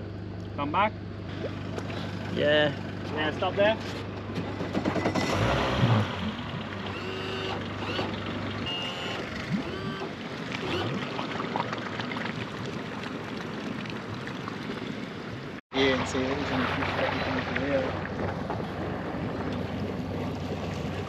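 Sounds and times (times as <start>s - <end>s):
vehicle engine idling: 0.0s - 10.5s, 14.7s - 21.0s
short high-pitched beeps: 8.7s - 10.0s.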